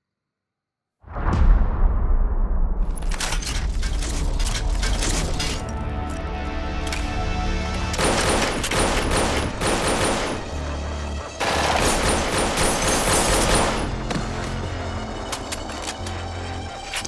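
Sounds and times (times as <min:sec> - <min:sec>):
film score with low drone: 0:01.0 - 0:17.0
automatic gunfire: 0:08.0 - 0:10.5, 0:11.4 - 0:13.9.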